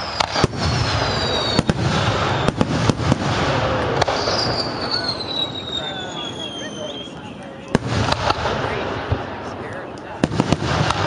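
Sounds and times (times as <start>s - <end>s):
descending firework whistle: 0.0s - 8.1s
fireworks bangs: 0.0s - 11.0s
fireworks crackle and rumble: 0.0s - 11.0s.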